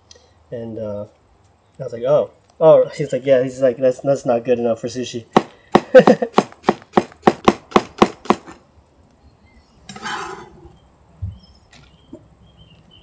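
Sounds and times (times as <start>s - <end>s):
knife scraping across board: 9.9s - 10.8s.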